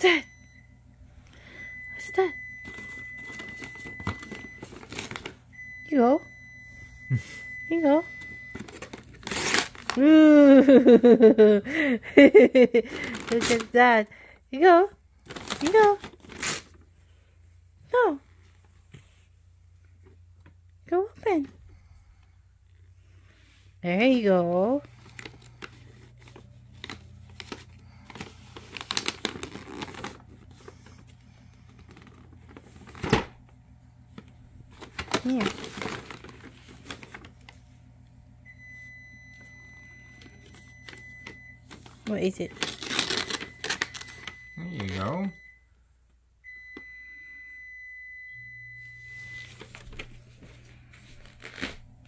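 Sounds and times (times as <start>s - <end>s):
low steady hum: 0.0s - 52.0s
wrapping paper rustling and tearing: 2.7s - 5.4s, 8.5s - 10.1s, 12.9s - 13.8s, 15.2s - 16.9s, 24.8s - 33.2s, 34.1s - 37.7s, 40.4s - 45.0s, 49.5s - 52.0s.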